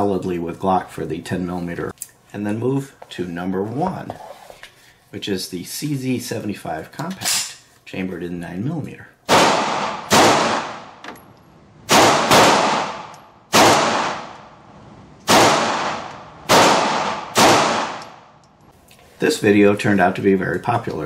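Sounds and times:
pistol shots echoing indoors: 9.3 - 11.0, 11.8 - 18.4.

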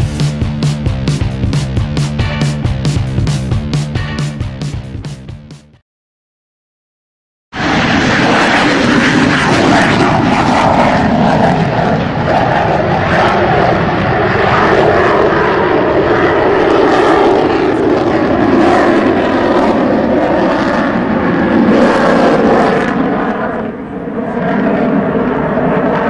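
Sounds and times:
fighter jet engines overhead: 0.0 - 5.4, 7.6 - 26.0.

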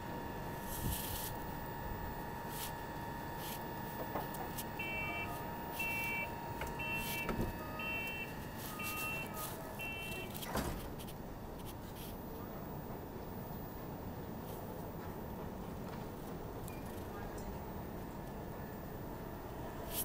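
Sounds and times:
steady electrical hum: 0.0 - 20.0
two-tone electronic beep: 4.7 - 10.4.

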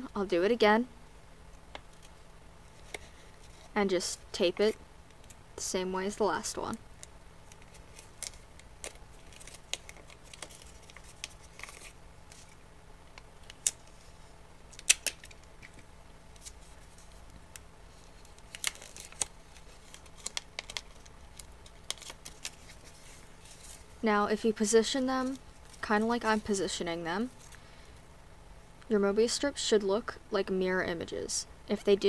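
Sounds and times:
paper rustling and crinkling: 7.4 - 12.6, 13.4 - 24.0
small clicks of paper and tape: 18.2 - 23.7.

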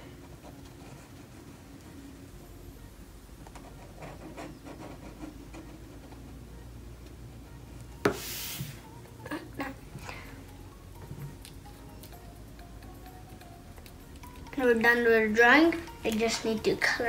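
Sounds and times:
marker scratching on paper: 3.6 - 6.2.

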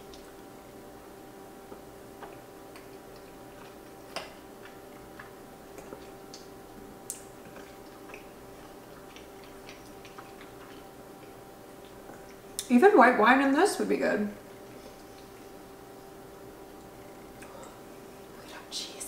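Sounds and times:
faint hum: 0.0 - 19.0
closed-mouth chewing: 1.7 - 12.7.

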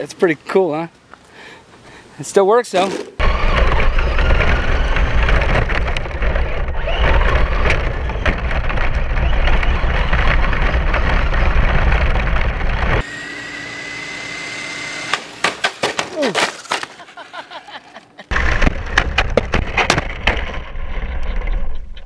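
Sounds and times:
rc truck rumble: 3.0 - 16.0, 18.3 - 22.0
wind buffeting: 3.2 - 13.0.

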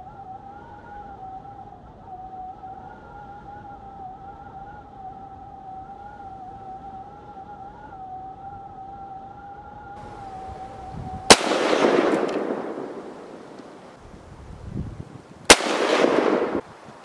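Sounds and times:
sharp crack with rushing tail: 11.2 - 14.0, 15.5 - 17.0.

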